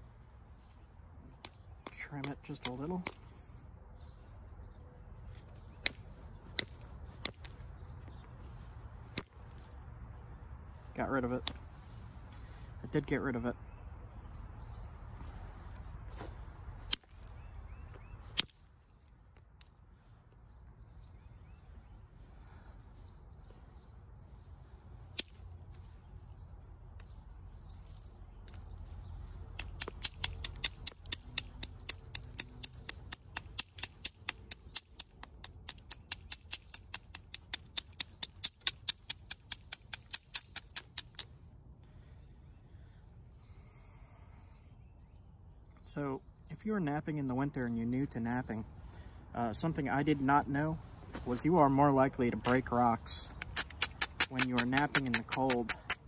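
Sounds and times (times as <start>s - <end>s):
billet tapping stone edge: 29.5s - 41.3s, 53.3s - 56.0s.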